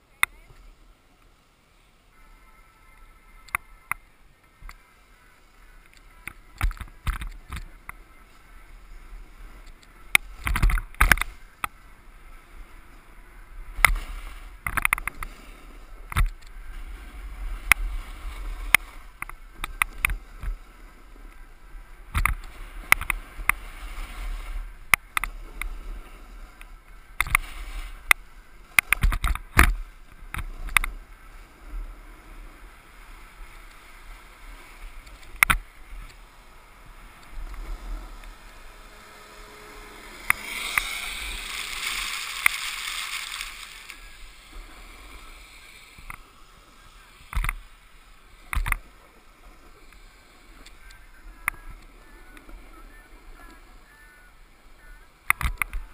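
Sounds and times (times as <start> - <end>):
snowboard scraping over snow: 4.8 - 53.9
steady low rumble: 29.8 - 53.4.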